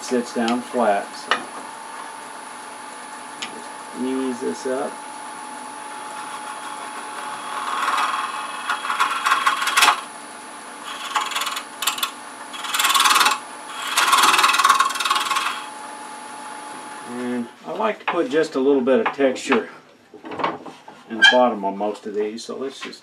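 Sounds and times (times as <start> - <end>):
lathe humming: 4.8 - 17.0
scraper cutting spinning wood: 5.9 - 10.1, 10.8 - 15.8.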